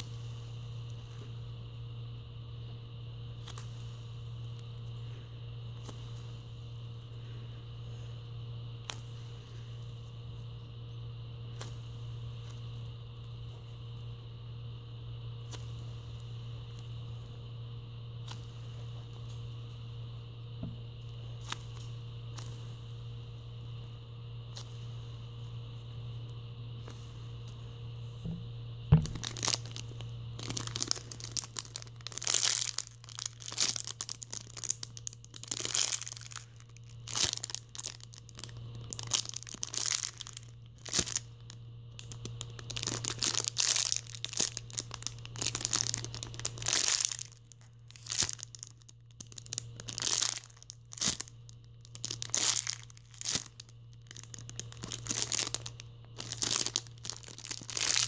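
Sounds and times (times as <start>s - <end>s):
plastic bag crinkling: 28.2s - 58.0s.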